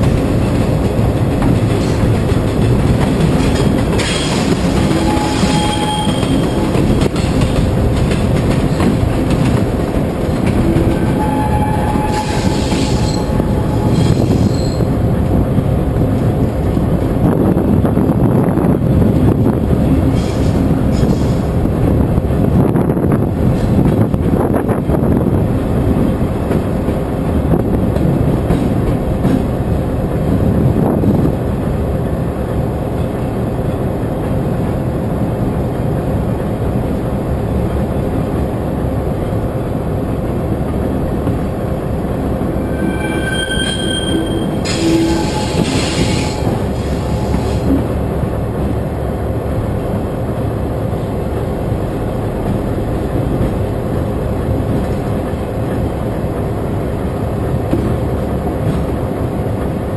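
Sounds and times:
train wheels rumbling on rails: 0:00.0 - 0:59.9
wheels squealing: 0:04.0 - 0:07.5, 0:10.3 - 0:15.0, 0:42.4 - 0:47.9.

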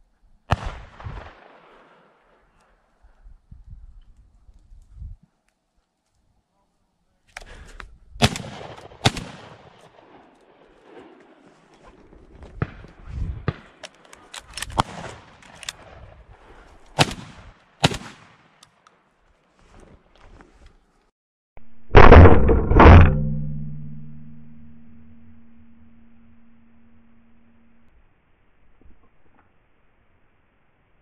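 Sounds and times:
shotgun shots: 0:08.2 - 0:10.2, 0:14.6 - 0:15.9, 0:17.0 - 0:18.6.

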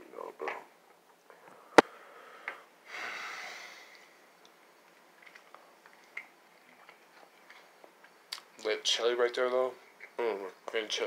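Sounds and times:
noisy breath out: 0:01.4 - 0:04.2.

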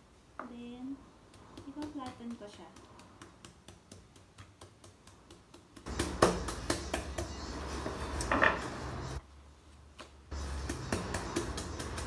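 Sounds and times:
meat mallet pounding fish: 0:01.3 - 0:07.4, 0:10.4 - 0:12.0.

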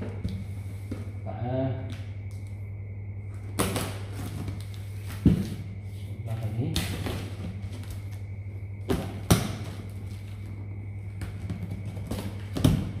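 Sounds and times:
steady low hum: 0:00.0 - 0:13.0
knife cutting packing tape: 0:03.6 - 0:05.5.

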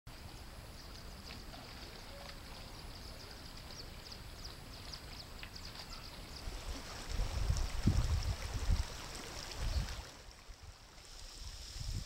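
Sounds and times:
small birds chirping: 0:00.3 - 0:06.8.

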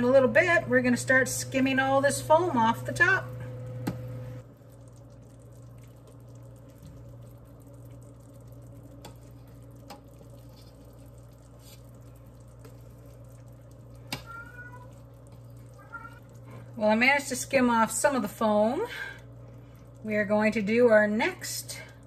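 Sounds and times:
low steady hum: 0:00.0 - 0:22.0
spoon wet scooping: 0:04.6 - 0:16.8.

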